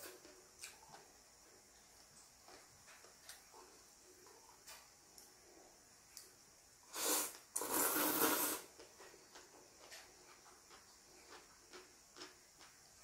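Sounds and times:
person slurping noodles: 0:06.9 - 0:08.7.

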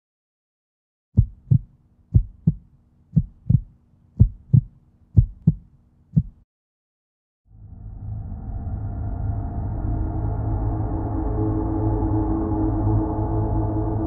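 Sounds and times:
heartbeat double thump: 0:01.2 - 0:06.4.

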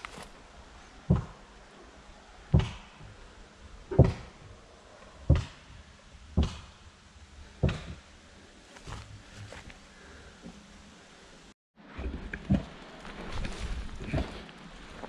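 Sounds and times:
slow footsteps: 0:00.0 - 0:00.4, 0:07.5 - 0:10.9, 0:12.1 - 0:15.0.

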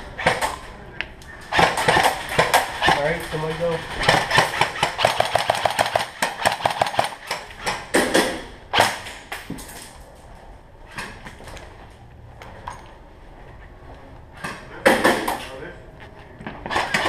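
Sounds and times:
airsoft rifle full-auto fire: 0:04.0 - 0:09.0.

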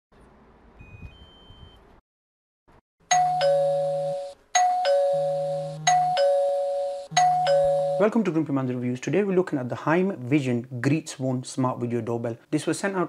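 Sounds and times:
doorbell ding-dong chime: 0:03.1 - 0:08.2.

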